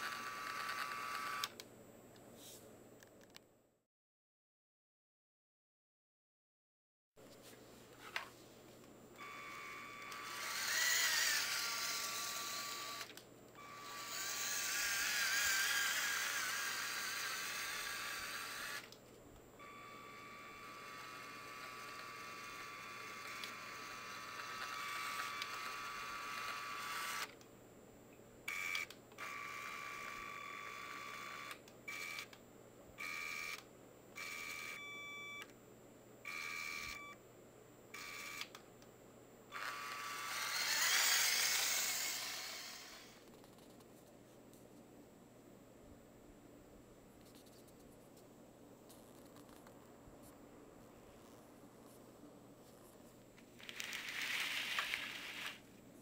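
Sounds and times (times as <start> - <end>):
toy truck motors whining: 9.2 - 18.9, 39.6 - 43.2, 53.6 - 55.6.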